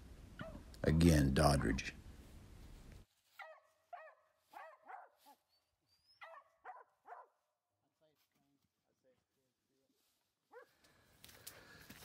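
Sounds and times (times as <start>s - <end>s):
dogs barking: 3.4s - 5.4s, 6.1s - 7.4s, 10.5s - 10.8s.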